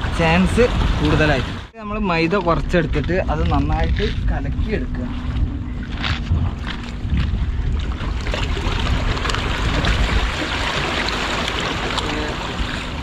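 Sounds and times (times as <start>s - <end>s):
waves splashing over rocks: 0.0s - 13.0s
wind buffeting microphone: 0.0s - 13.0s.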